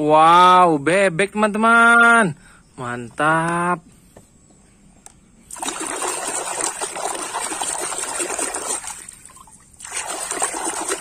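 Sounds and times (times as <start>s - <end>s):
water splashing and trickling: 5.4s - 11.0s.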